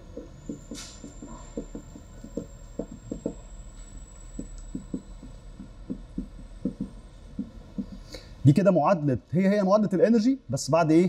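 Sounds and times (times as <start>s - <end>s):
faint high whine: 0.0s - 8.8s
chalk tapping on board: 0.2s - 3.4s, 4.4s - 8.1s.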